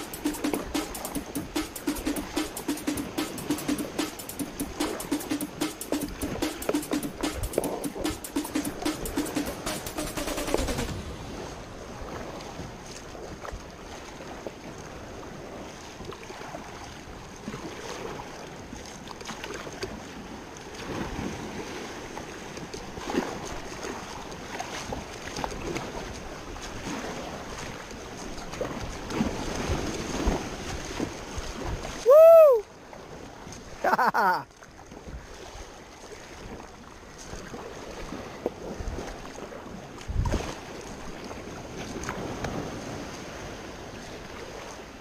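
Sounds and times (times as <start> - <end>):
kayak paddle strokes in water: 0.0 - 45.0
water splashing and lapping: 0.0 - 45.0
wind on microphone: 40.0 - 44.7.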